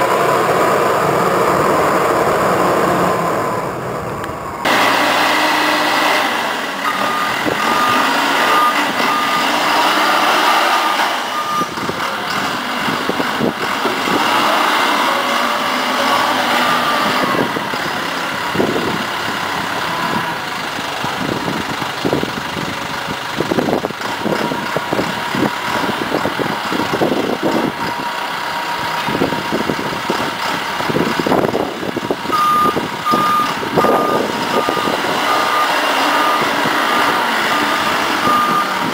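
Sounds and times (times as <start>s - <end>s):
forklift engine running: 0.0s - 38.9s
reversing beeper beeps: 6.8s - 9.7s, 11.3s - 11.8s, 16.0s - 17.4s, 32.3s - 36.7s, 37.6s - 38.8s.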